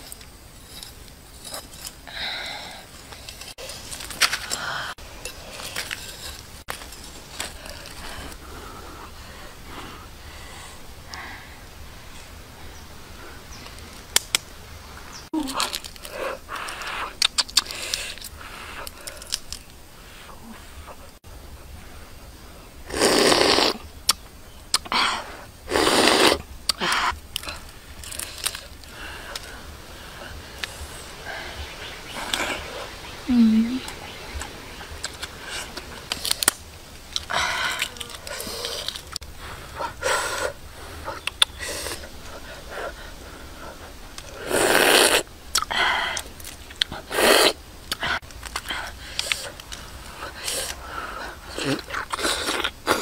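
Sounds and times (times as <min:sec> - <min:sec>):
person chewing with mouth smacks: 0:17.2 - 0:17.7, 0:41.2 - 0:41.6, 0:45.5 - 0:46.9.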